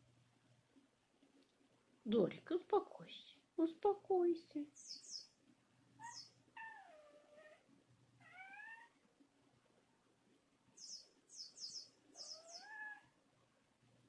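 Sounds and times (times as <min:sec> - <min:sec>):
cat meowing: 0:06.0 - 0:09.0, 0:12.2 - 0:13.2.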